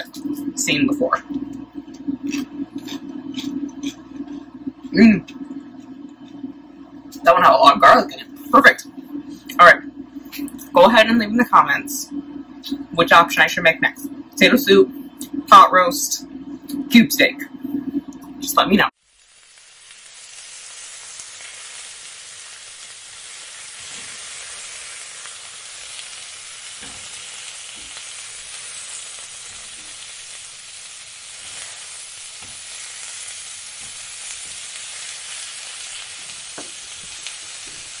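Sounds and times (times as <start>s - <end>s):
food sizzling in a frying pan: 18.9s - 38.0s.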